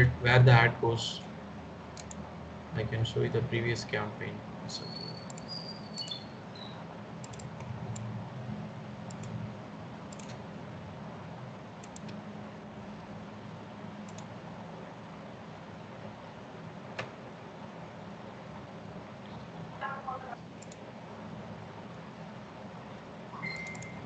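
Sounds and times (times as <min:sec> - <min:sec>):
steady low hum: 0:00.0 - 0:24.0
computer mouse clicks: 0:02.0 - 0:02.2, 0:05.2 - 0:06.2, 0:07.2 - 0:08.1, 0:09.1 - 0:09.4, 0:10.1 - 0:10.4, 0:11.8 - 0:12.2, 0:14.0 - 0:14.3, 0:20.6 - 0:20.8, 0:23.6 - 0:24.0.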